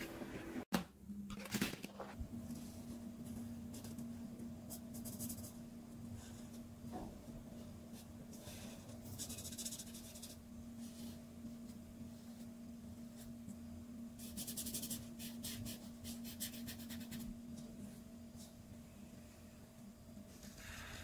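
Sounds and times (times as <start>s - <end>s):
low steady hum: 0.0s - 21.0s
marker scratching on paper: 9.1s - 10.4s, 14.2s - 17.3s.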